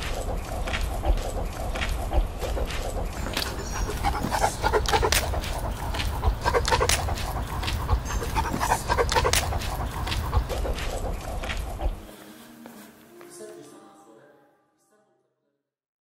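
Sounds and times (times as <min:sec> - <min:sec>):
dog panting: 0:00.0 - 0:12.1
steady low rumble: 0:00.0 - 0:12.1.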